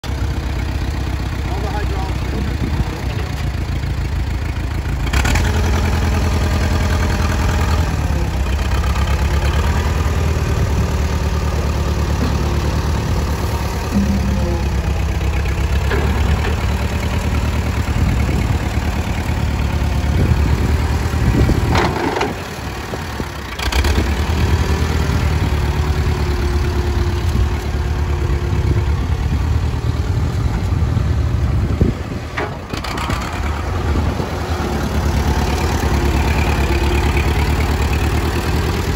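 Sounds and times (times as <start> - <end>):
tractor engine running: 0.0 - 38.9
metallic clanks: 13.9 - 17.1.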